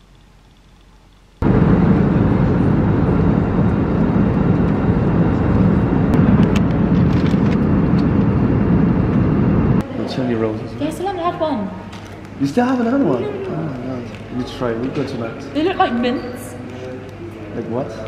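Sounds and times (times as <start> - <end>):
airliner cabin roar: 1.4 - 9.9.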